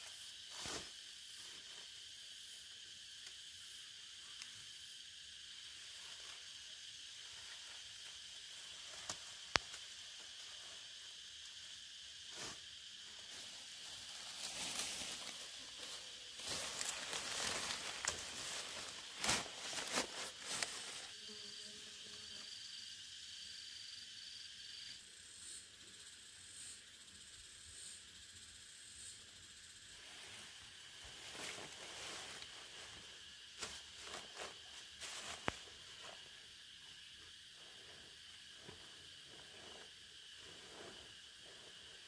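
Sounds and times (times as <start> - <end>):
high insect hiss: 0.0 - 42.0
leaves rustling: 12.3 - 21.2, 30.0 - 36.3.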